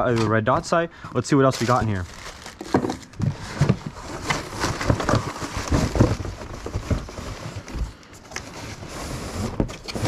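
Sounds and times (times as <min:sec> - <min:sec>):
box sliding against cardboard: 0:03.3 - 0:10.0.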